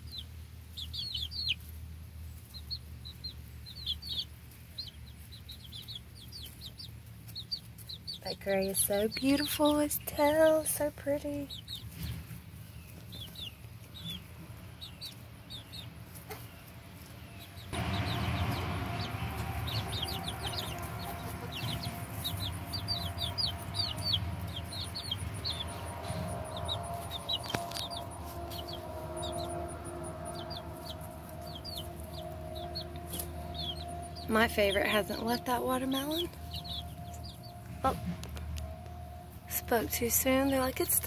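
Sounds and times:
chicks peeping: 0:00.0 - 0:41.0
rushing background noise with hum: 0:17.7 - 0:41.0.

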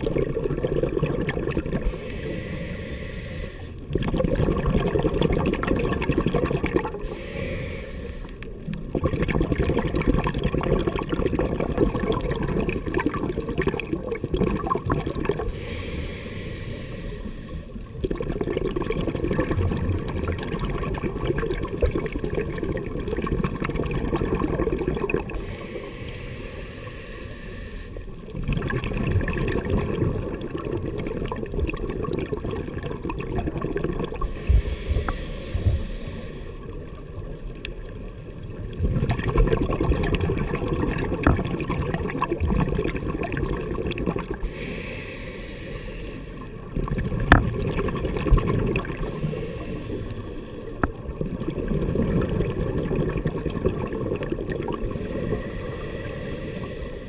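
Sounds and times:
exhaled bubbles rumbling: 0:00.0 - 0:02.3, 0:03.8 - 0:07.2, 0:08.4 - 0:15.8, 0:17.6 - 0:25.6, 0:28.2 - 0:36.0, 0:36.6 - 0:44.6, 0:46.4 - 0:57.0
regulator hissing inhale: 0:01.8 - 0:03.8, 0:07.0 - 0:08.7, 0:15.4 - 0:17.9, 0:25.4 - 0:28.2, 0:34.2 - 0:37.0, 0:44.4 - 0:46.7, 0:49.0 - 0:51.0, 0:54.8 - 0:57.0.

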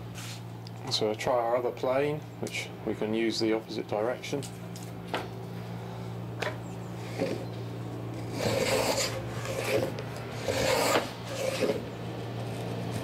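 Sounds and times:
hand plane rasping on wood: 0:07.0 - 0:07.5, 0:08.2 - 0:11.9.

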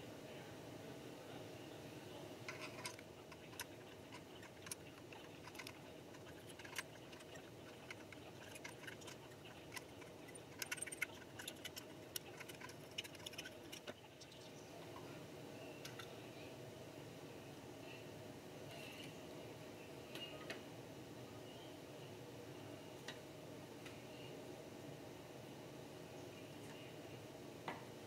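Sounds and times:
faint steady hiss: 0:00.0 - 0:28.0.

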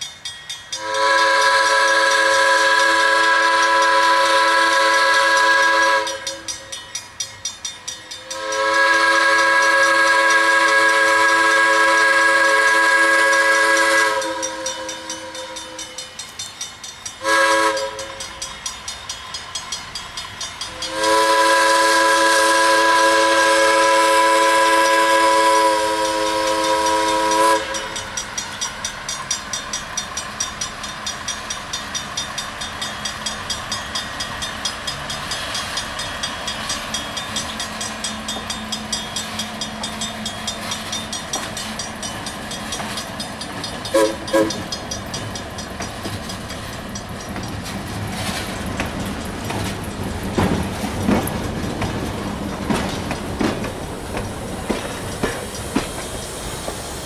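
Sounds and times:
crossing bell ringing: 0:00.0 - 0:55.9
locomotive air whistle blasts: 0:00.8 - 0:06.7, 0:08.0 - 0:16.1, 0:17.2 - 0:18.4, 0:20.7 - 0:28.2, 0:43.9 - 0:44.7.

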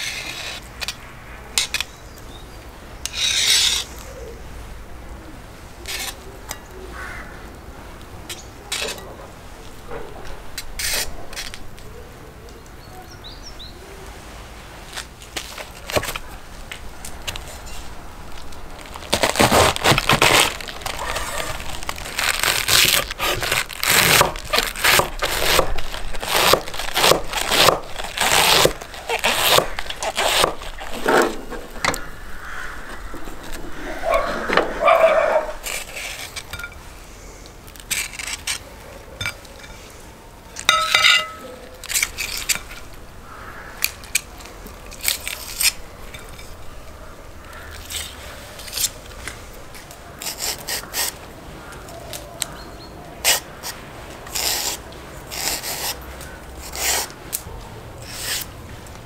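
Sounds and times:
knife shredding cabbage on board: 0:19.2 - 0:31.2
metal scrapes and clinks: 0:40.7 - 0:42.8.

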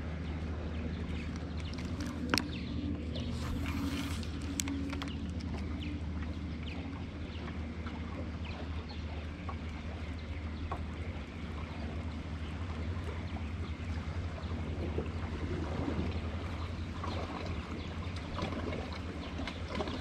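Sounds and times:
water lapping against hull: 0:00.0 - 0:20.0
electric motor humming: 0:01.1 - 0:07.1.

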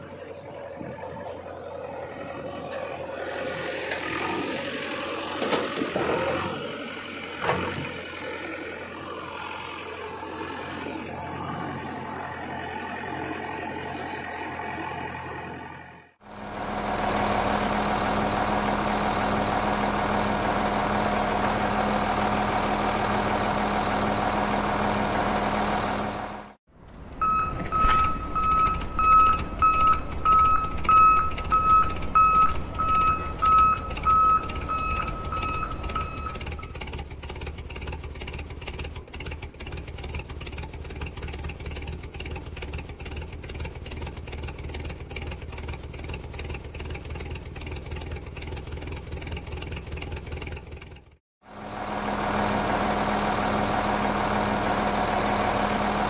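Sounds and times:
heavy vehicle engine drone: 0:00.0 - 0:56.0
reversing beeper: 0:27.2 - 0:36.8.

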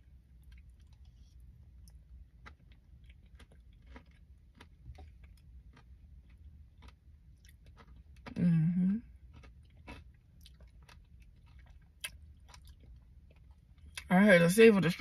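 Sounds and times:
faint chewing: 0:00.3 - 0:14.1.

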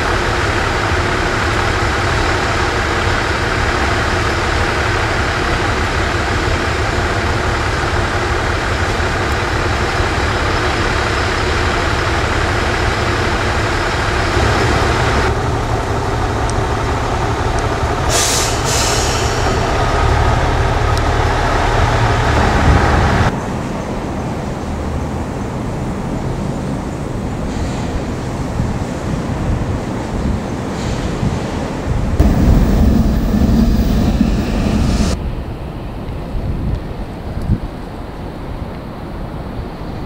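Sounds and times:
shunting vehicle running: 0:00.0 - 0:23.4, 0:32.2 - 0:35.2
air brake hisses: 0:18.1 - 0:19.7, 0:30.7 - 0:31.4.

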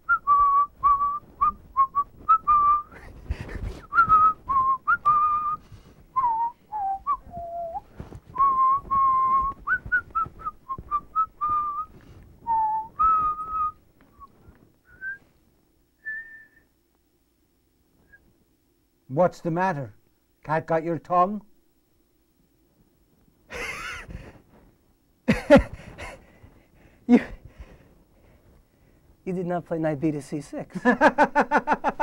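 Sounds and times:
man whistling a tune: 0:00.0 - 0:03.0, 0:03.8 - 0:05.6, 0:06.2 - 0:15.2, 0:16.0 - 0:16.7.

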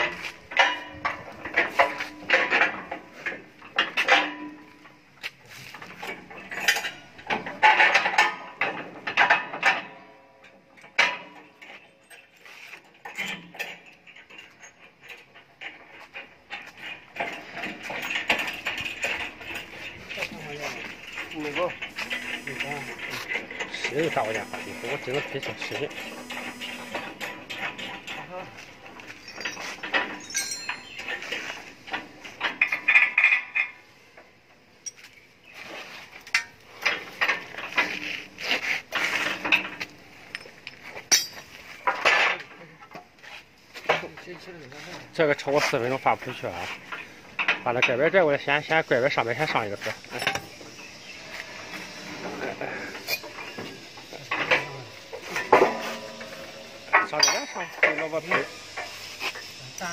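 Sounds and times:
steel parts clanking: 0:00.0 - 0:10.0, 0:10.6 - 0:33.9, 0:34.8 - 0:43.0, 0:45.2 - 0:59.9
metallic clinks and knocks: 0:27.2 - 0:33.7, 0:34.8 - 0:35.3, 0:39.4 - 0:42.4, 0:52.8 - 0:59.6.

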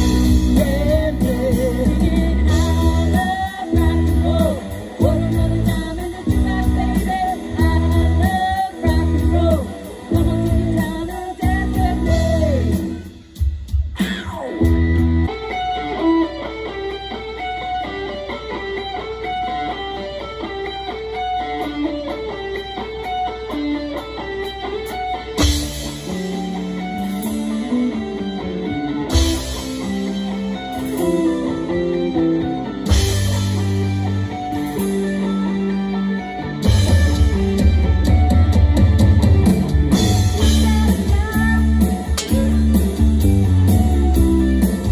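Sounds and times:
electric guitar riff: 0:00.0 - 0:44.9
rock band playing: 0:00.0 - 0:44.9.

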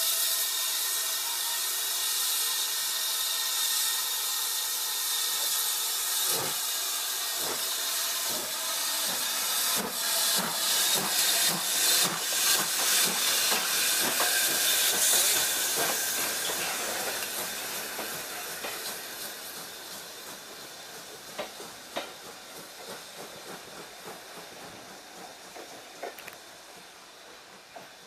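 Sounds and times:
steam locomotive hissing: 0:00.0 - 0:28.0
train wheels clacking over rail joints: 0:06.2 - 0:06.7, 0:07.3 - 0:28.0.

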